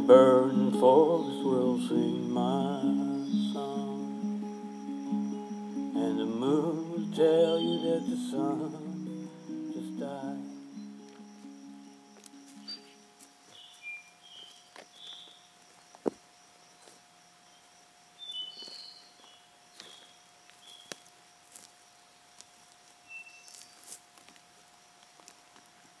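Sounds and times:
bird chirps: 0.0s - 15.5s, 18.2s - 21.0s, 23.0s - 23.8s
faint steady tone: 0.0s - 15.8s.

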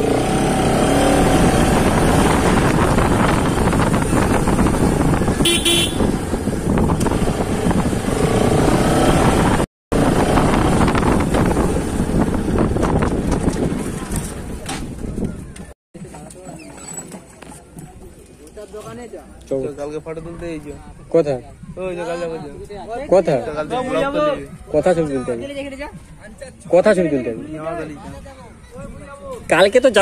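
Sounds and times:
motorcycle engine running: 0.0s - 14.5s
wind and road noise: 0.0s - 30.0s
vehicle horn toot: 5.4s - 6.1s.

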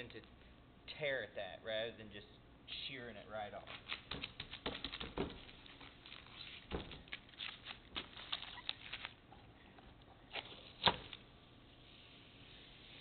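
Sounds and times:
masking tape peeling: 3.6s - 9.2s.

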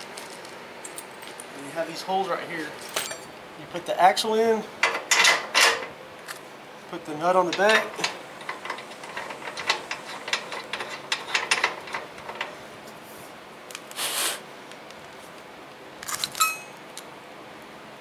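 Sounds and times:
metal clinks: 16.3s - 16.8s.

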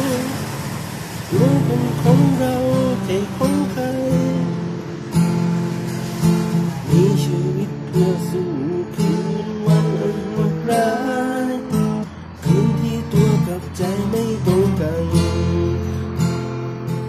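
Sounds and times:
person singing: 0.0s - 0.6s, 1.3s - 4.7s, 6.7s - 16.1s
acoustic guitar strumming chords: 0.0s - 17.0s.

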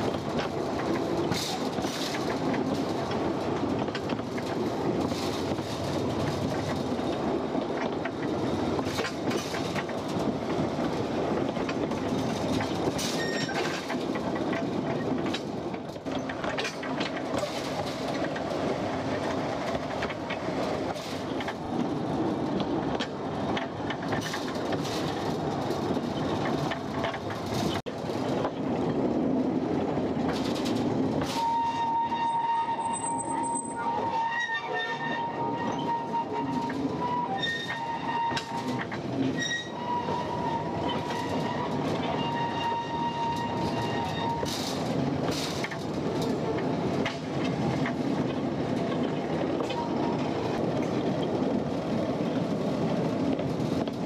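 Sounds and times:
wheels clicking and knocking: 0.0s - 32.3s, 35.3s - 54.0s
mine train rumbling rattle: 0.0s - 54.0s.

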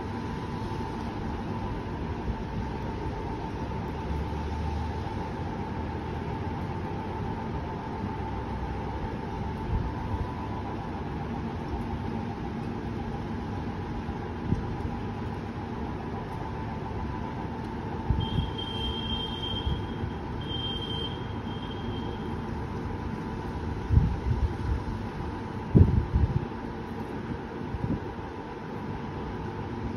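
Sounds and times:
steady hum: 0.0s - 29.9s
high whistle-like tone: 18.2s - 22.2s
wind buffeting microphone: 23.8s - 25.0s, 25.6s - 26.6s.

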